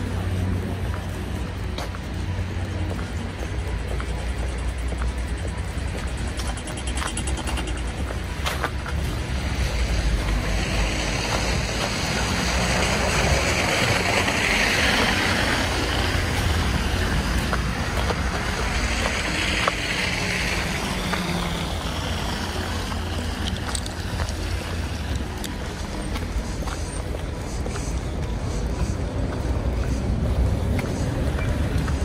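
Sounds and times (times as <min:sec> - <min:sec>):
cars passing on wet road: 0:00.0 - 0:32.0
low traffic rumble: 0:00.0 - 0:32.0.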